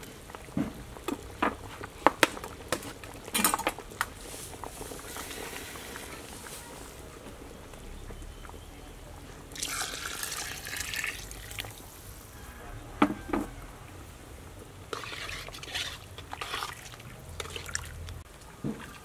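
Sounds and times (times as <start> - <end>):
liquid pouring into pot: 9.5 - 11.8
liquid sloshing and bubbling: 14.8 - 19.0.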